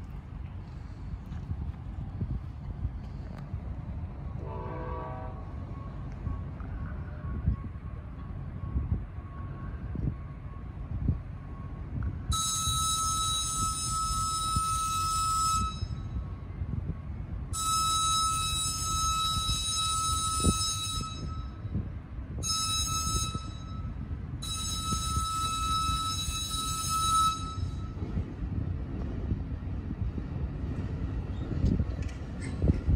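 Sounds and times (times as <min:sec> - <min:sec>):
train low rumble: 0:00.0 - 0:32.9
train horn: 0:04.4 - 0:05.5.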